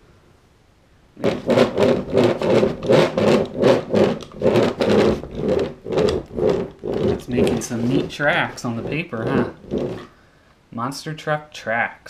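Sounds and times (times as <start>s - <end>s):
toy tyres scrubbing on paper: 1.2s - 10.1s.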